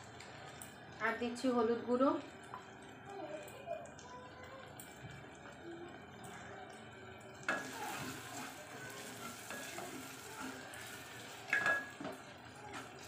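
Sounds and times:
tomatoes sizzling in pot: 0.0s - 13.0s
wooden spatula scraping pot: 7.6s - 13.0s.

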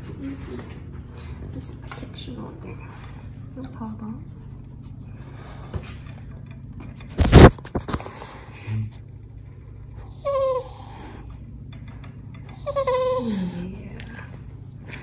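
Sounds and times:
dog whining: 10.0s - 11.4s, 12.4s - 14.0s.

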